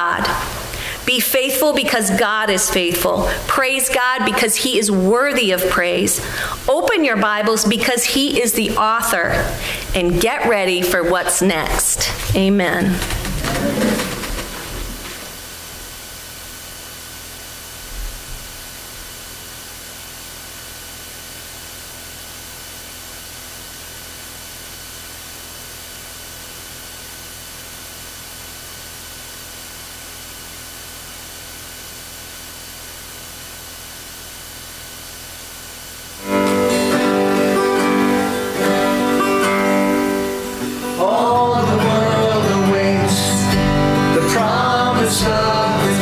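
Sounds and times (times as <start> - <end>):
room tone hiss: 0.0 - 46.0
acoustic guitar strumming: 36.2 - 46.0.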